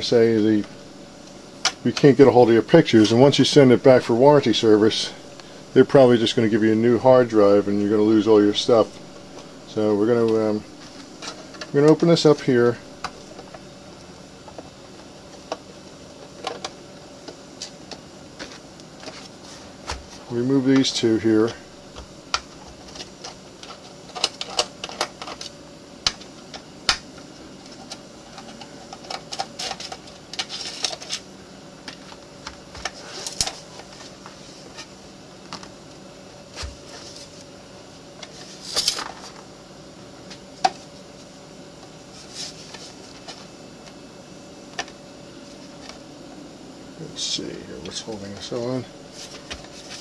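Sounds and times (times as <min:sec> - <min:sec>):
faint steady hum: 0:00.0 - 0:50.0.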